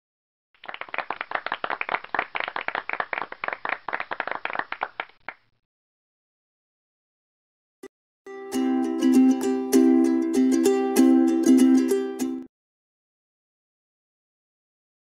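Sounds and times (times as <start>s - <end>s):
crowd clapping: 0.6s - 5.5s.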